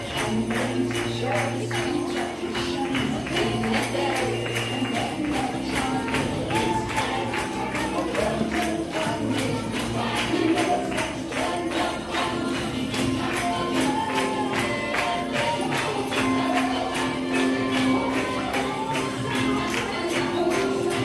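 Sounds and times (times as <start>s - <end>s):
upbeat music with percussion beat: 0.0s - 21.0s
voices singing: 0.0s - 21.0s.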